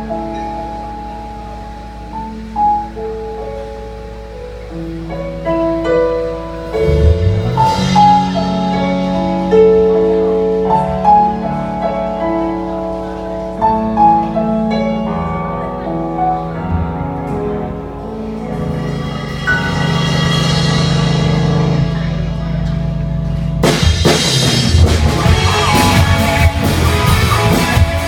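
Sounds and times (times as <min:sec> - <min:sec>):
held bass notes: 0:00.0 - 0:28.0
keyboard chords and melody: 0:00.0 - 0:28.0
low drum hits: 0:06.8 - 0:08.7.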